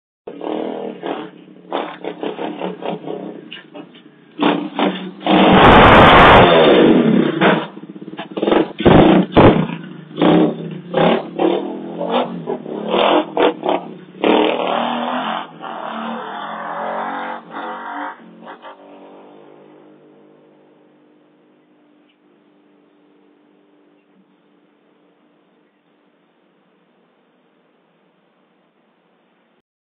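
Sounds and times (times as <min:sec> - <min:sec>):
motorbike engine revving: 0:00.3 - 0:21.0
loud crash: 0:04.4 - 0:11.4.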